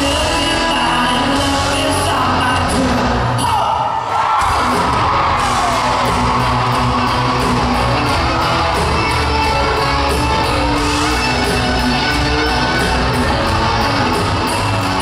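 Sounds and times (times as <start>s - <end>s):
drums with cymbal beat: 0.0s - 3.1s, 4.4s - 15.0s
bass: 0.0s - 3.7s, 4.4s - 15.0s
electric guitars: 4.4s - 15.0s
guitar pitch glides: 6.6s - 15.0s.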